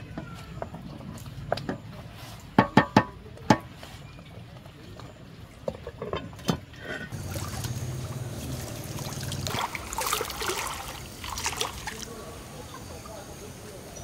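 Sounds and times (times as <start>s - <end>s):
wooden spatula knocking metal pot: 2.6s - 3.8s
water trickling: 7.1s - 13.8s.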